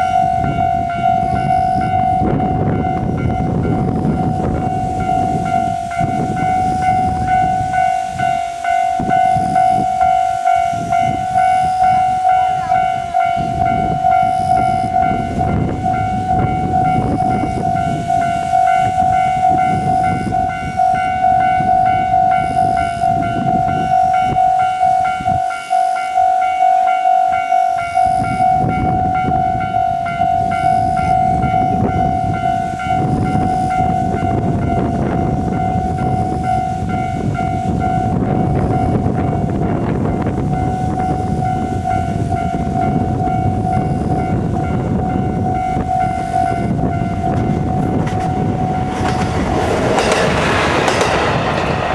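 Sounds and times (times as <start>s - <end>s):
diesel railcar rumbling: 0.0s - 51.9s
level crossing bell clanging: 0.0s - 51.9s.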